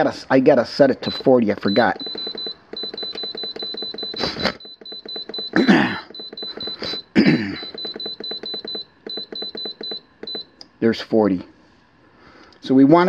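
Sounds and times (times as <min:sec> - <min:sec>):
short high beeps: 0:01.1 - 0:10.5.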